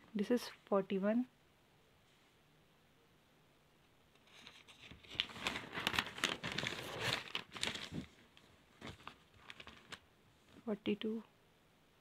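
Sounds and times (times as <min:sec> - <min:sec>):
paper pages being turned: 0:04.2 - 0:10.7.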